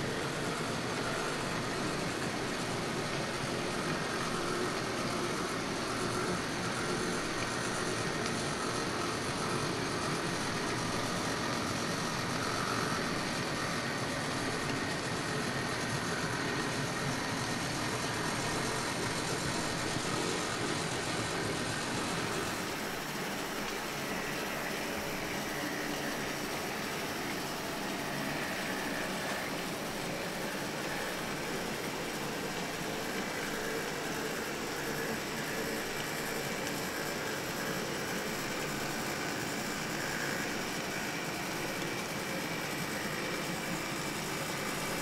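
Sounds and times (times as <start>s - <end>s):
model train running on rails: 0.0s - 45.0s.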